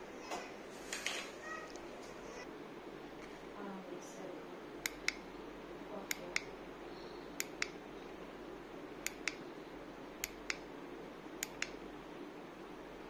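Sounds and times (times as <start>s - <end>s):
sharp clicks: 4.8s - 5.3s, 6.0s - 6.5s, 7.4s - 7.8s, 9.0s - 9.4s, 10.2s - 10.7s, 11.4s - 11.8s.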